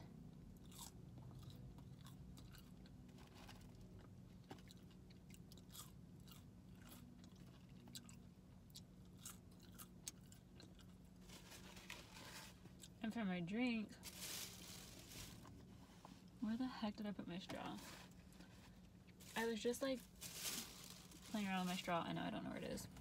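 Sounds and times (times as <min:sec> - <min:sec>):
low steady hum: 0:00.0 - 0:23.0
chewing crunchy fries: 0:00.2 - 0:13.0.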